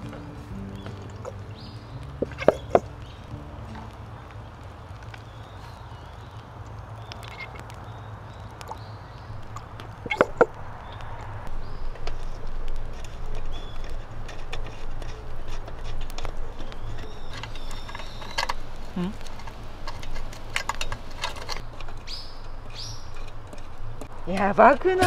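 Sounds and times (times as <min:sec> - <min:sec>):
bird chirps: 0:00.0 - 0:12.4, 0:13.2 - 0:14.1, 0:16.4 - 0:19.2, 0:21.5 - 0:23.3.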